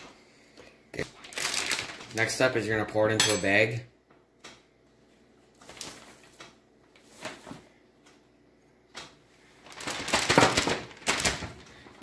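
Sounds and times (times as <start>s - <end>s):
plastic bag crinkling: 1.0s - 2.9s, 9.4s - 12.0s.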